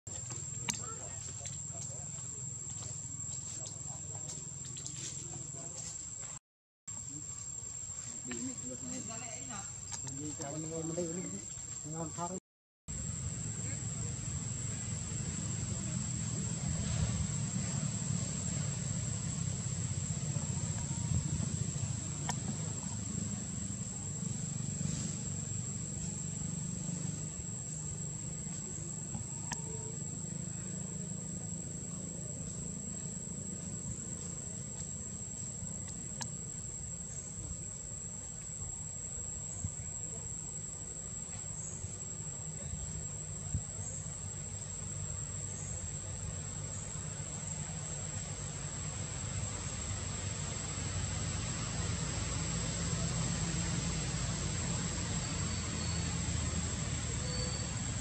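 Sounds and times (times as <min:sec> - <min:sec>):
high-pitched insect whine: 0:00.1 - 0:58.0.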